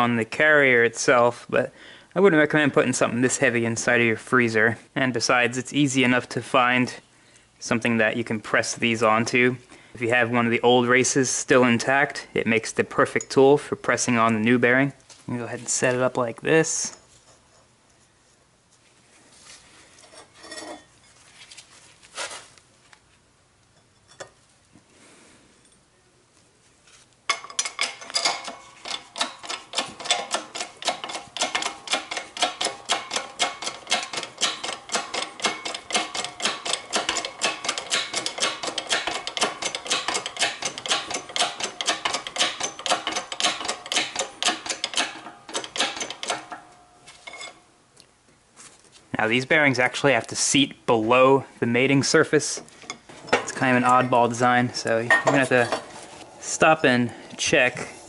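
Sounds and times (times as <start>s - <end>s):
knocks of metal parts: 27.3s - 47.6s
shop press running: 27.6s - 47.0s
rapid even clicking: 28.4s - 46.6s.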